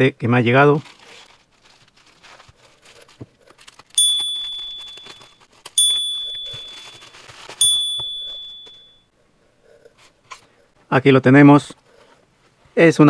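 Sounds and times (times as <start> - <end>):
plastic bag crinkling: 0.6 - 8.9
bright bell dings: 4.0 - 9.1.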